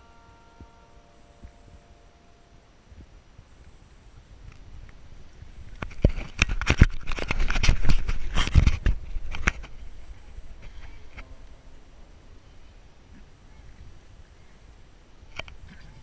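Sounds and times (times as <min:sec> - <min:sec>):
camera microphone handling noise: 0:04.4 - 0:11.3.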